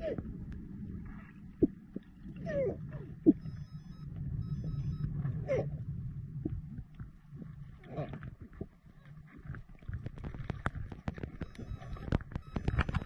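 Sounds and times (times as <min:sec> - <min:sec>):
underwater low rumble: 0:00.0 - 0:13.0
sharp underwater clicks: 0:06.4 - 0:13.0.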